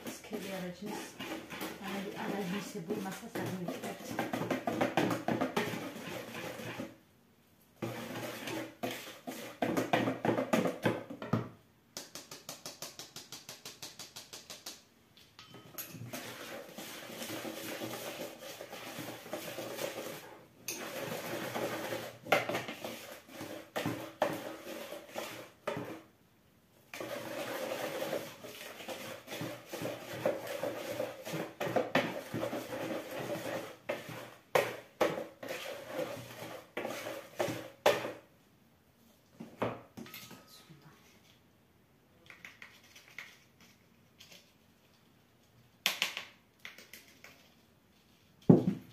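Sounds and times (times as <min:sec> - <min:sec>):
whisk beating batter in bowl: 0:00.0 - 0:06.9, 0:07.8 - 0:10.8, 0:16.1 - 0:26.0, 0:27.0 - 0:38.2.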